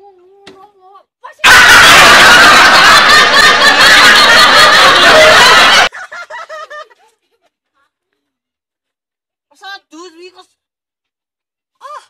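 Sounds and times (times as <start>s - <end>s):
loud harsh laughter: 1.4s - 6.9s.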